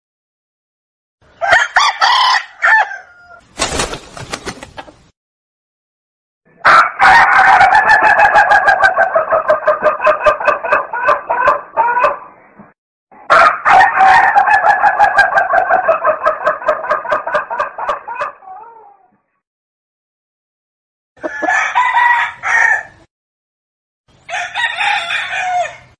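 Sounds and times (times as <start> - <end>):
chickens calling loudly: 1.2 - 5.1, 6.6 - 19.2, 21.2 - 23.1, 24.1 - 25.9.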